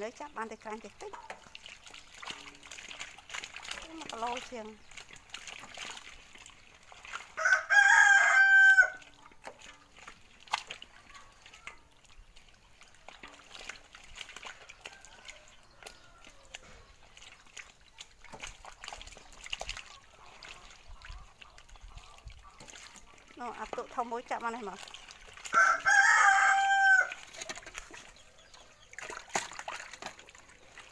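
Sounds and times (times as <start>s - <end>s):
fish splashing in water: 0.0s - 30.9s
rooster crowing: 7.4s - 9.0s, 25.5s - 27.2s.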